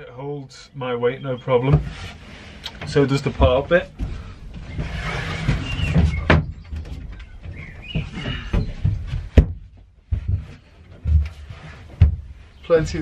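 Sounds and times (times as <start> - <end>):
wood sliding rustle: 1.6 - 9.4, 10.2 - 13.0
sharp wooden knocks: 4.0 - 12.4.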